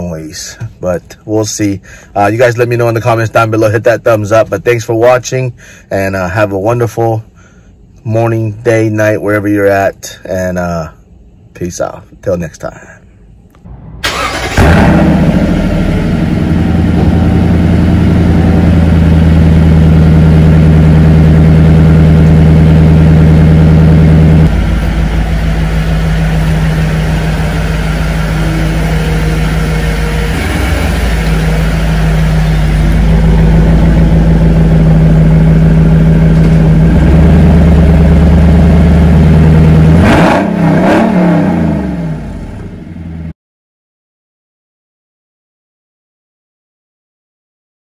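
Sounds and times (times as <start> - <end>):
car engine starting and idling: 13.4 - 43.3.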